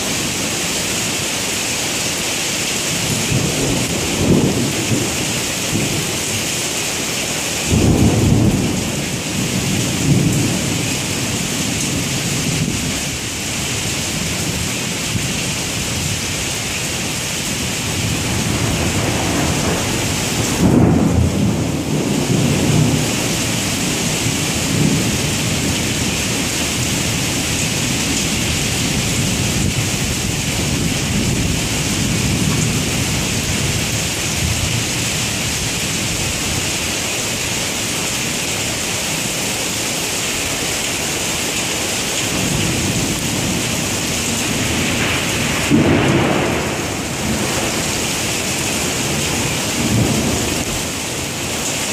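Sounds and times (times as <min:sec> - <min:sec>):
heavy rain on pavement: 0:00.0 - 0:51.9
thunder rumbling: 0:03.1 - 0:06.2, 0:07.7 - 0:13.2, 0:17.6 - 0:36.6, 0:42.2 - 0:51.6.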